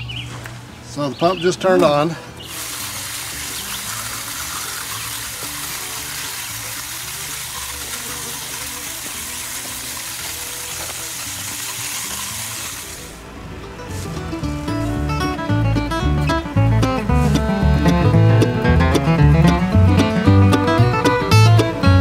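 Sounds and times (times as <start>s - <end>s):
water spraying onto rock: 2.5s - 13.2s.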